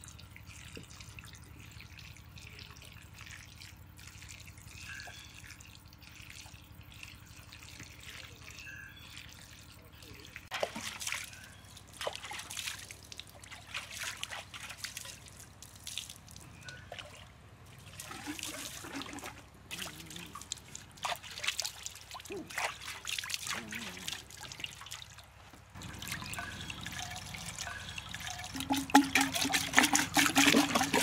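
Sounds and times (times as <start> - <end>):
water splashing over bamboo tube: 10.2 - 17.2, 17.8 - 31.0.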